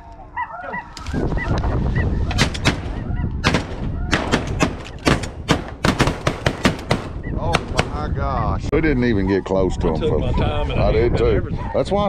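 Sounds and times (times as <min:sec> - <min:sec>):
geese honking: 0:00.0 - 0:05.1
shotgun blasts: 0:02.3 - 0:08.1.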